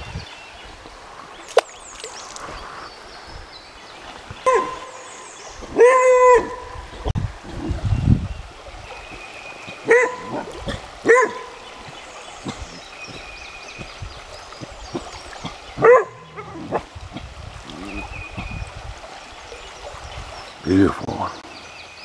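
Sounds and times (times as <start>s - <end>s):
stream water rushing: 0.0s - 22.0s
dog barking: 4.5s - 5.0s, 9.9s - 11.6s, 15.8s - 16.3s.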